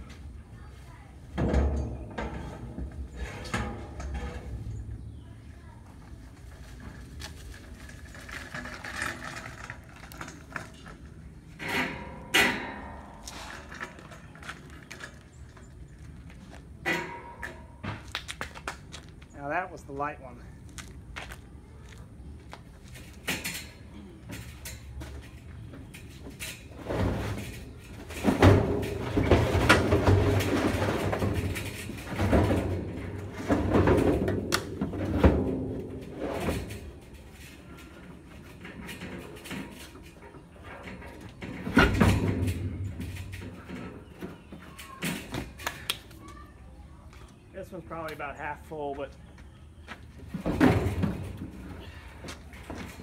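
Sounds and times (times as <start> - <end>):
hand truck rolling over gravel: 0.0 - 19.5, 20.7 - 45.6, 46.2 - 53.0
metal drum scraping across truck bed: 1.4 - 5.2, 26.3 - 44.6
loud metal clanks: 11.6 - 14.0
footsteps on gravel: 20.5 - 23.0.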